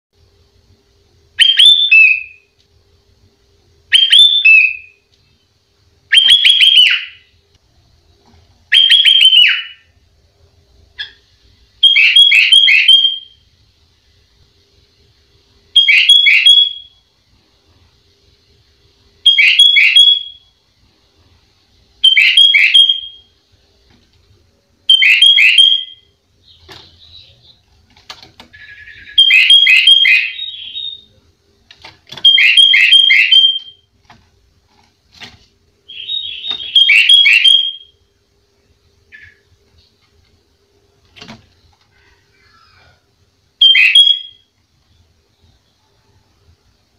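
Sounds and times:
bulbul singing: 8.7s - 9.9s, 11.8s - 13.4s, 15.7s - 17.0s, 19.2s - 20.5s, 22.0s - 23.3s, 24.8s - 27.8s, 28.4s - 31.2s, 32.1s - 33.9s, 35.8s - 38.1s, 43.6s - 44.5s.

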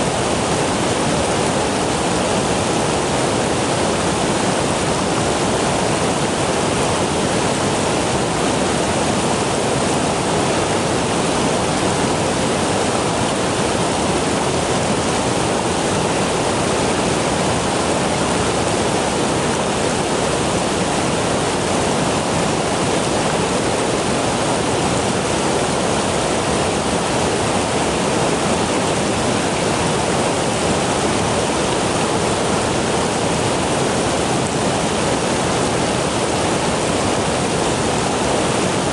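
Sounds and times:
stream water rushing: 0.0s - 38.9s.

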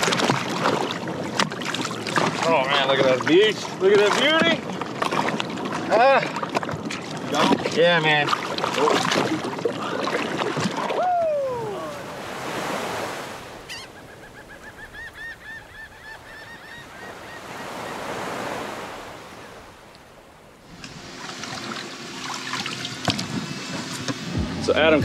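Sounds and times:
surf: 0.0s - 25.0s
wind: 0.0s - 25.0s
falling whoop: 10.8s - 12.2s
bird calling repeated notes: 13.7s - 18.1s.

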